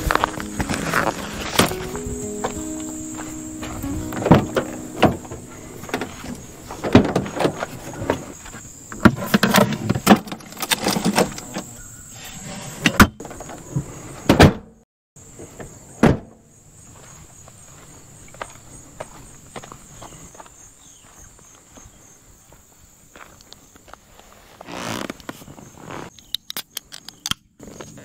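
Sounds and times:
car doors opening and shutting: 0.0s - 8.4s
knocks and clunks of gear: 3.6s - 11.7s.

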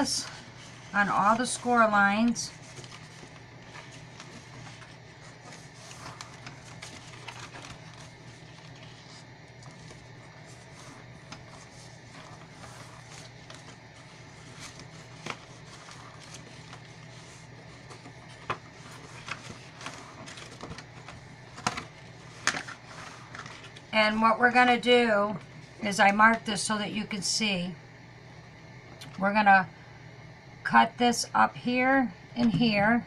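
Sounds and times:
steady low hum: 0.0s - 33.0s
paper rustling: 0.1s - 24.2s.

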